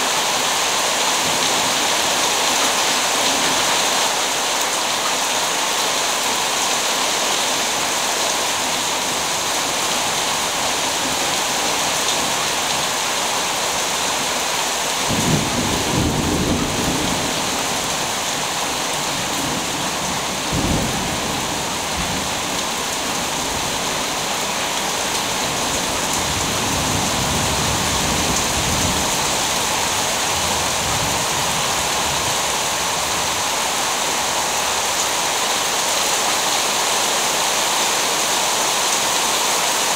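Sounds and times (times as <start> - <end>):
steady rain hissing: 0.0 - 39.9
thunder rumbling: 15.1 - 17.9.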